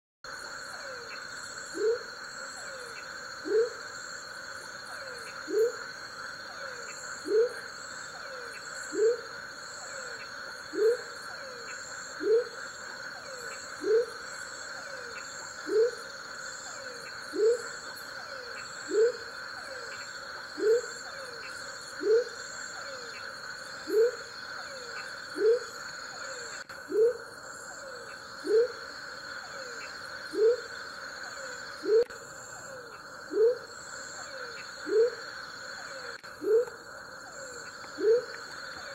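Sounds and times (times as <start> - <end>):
frog whoop call: 6.5 - 12.6, 16.7 - 20.0, 20.6 - 23.2, 23.8 - 35.2, 35.8 - 38.9.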